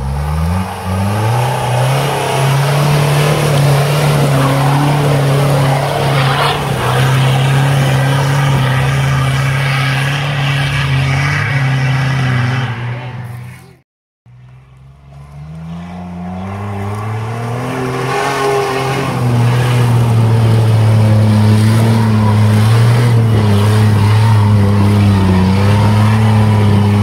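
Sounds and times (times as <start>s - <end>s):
buggy engine at high revs: 0.0s - 27.0s.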